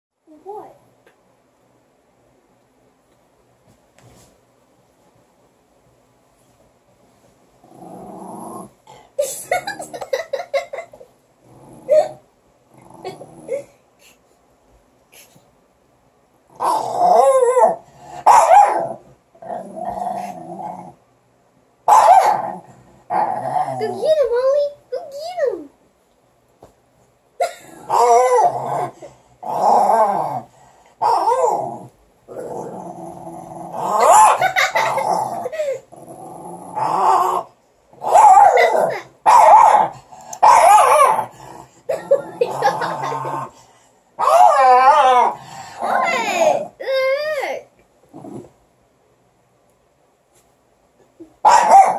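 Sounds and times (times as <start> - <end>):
small dogs growling: 7.6 - 13.8, 16.5 - 21.0, 21.9 - 24.2, 27.4 - 46.9, 48.0 - 48.6
dog barking: 18.3 - 18.9, 21.9 - 22.4, 38.1 - 41.1, 51.4 - 51.9.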